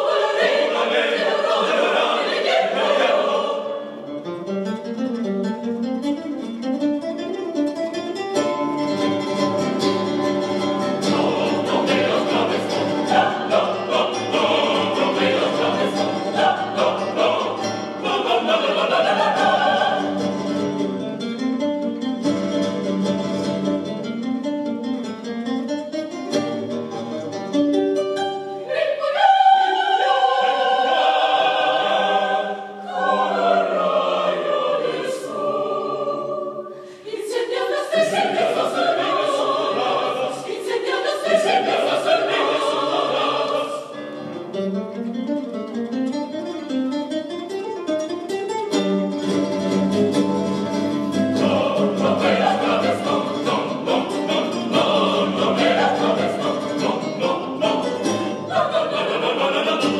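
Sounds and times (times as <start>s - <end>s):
mixed choir singing: 0.0s - 4.2s, 10.2s - 21.0s, 28.6s - 44.3s, 50.7s - 59.9s
classical guitar: 2.6s - 29.6s, 36.2s - 59.9s.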